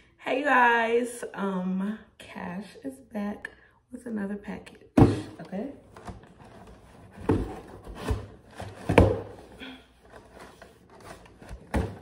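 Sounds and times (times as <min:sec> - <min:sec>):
cardboard box knocks: 0:07.2 - 0:09.4.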